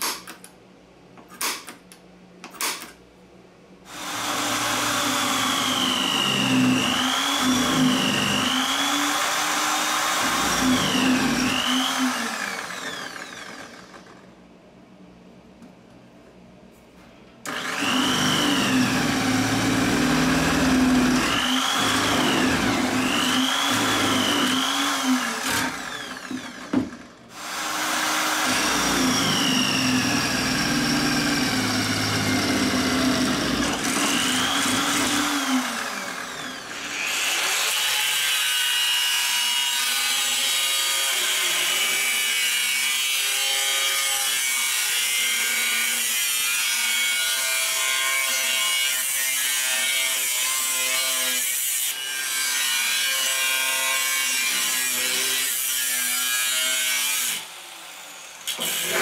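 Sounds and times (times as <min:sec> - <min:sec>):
angle grinder cutting steel: 0:03.9 - 0:14.1, 0:17.5 - 0:26.7, 0:27.3 - 0:59.0
drill press motor hum: 0:03.9 - 0:14.3, 0:17.4 - 0:37.0.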